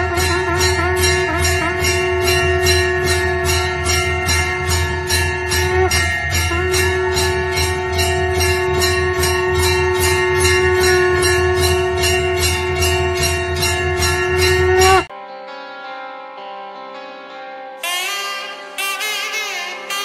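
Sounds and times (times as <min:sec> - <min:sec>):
music with jingling bell beat: 0:00.0 - 0:15.1.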